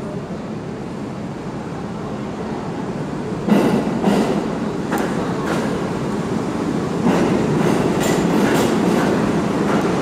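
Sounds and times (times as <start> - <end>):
subway train rumbling: 0.0 - 10.0
wheels clicking over rail joints: 7.0 - 10.0.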